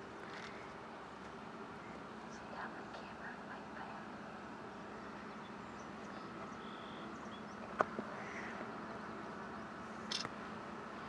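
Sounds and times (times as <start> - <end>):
steady low hum: 0.0 - 11.0
faint bird chirps: 1.8 - 10.3
sharp click: 10.1 - 10.3.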